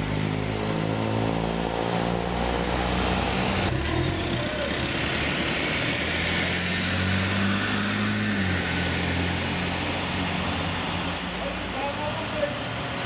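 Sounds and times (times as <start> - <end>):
cars driving past: 0.0 - 13.0
tyre and road noise: 0.0 - 13.0.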